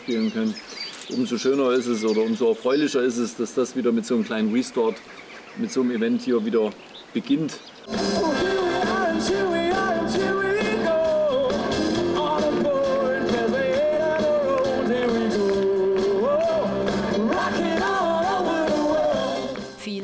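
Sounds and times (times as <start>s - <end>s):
person singing: 7.9s - 19.7s.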